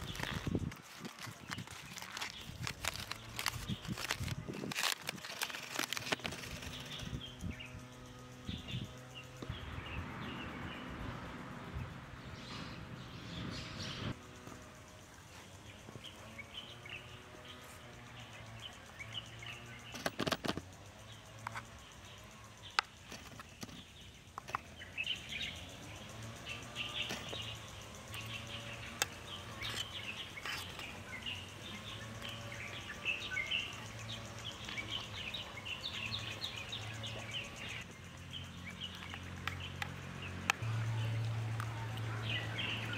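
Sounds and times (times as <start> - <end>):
aluminium foil crinkling: 0.0 - 7.0
small birds chirping: 0.0 - 42.9.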